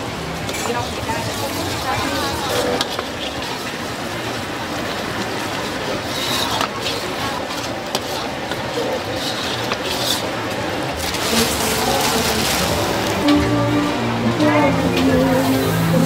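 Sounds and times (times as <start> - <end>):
liquid bubbling in a wok: 0.0 - 11.2.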